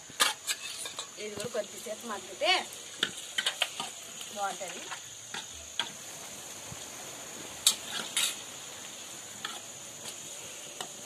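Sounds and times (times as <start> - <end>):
faint frying sizzle: 0.0 - 11.0
metal spatula scraping pan: 0.2 - 1.2, 3.0 - 4.0, 7.6 - 8.5, 9.4 - 10.2.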